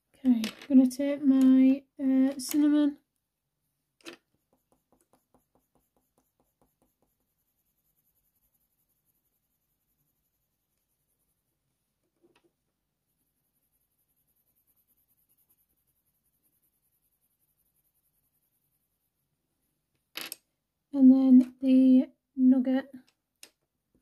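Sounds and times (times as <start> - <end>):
pencil scratching on paper: 4.2 - 11.6, 13.1 - 18.8.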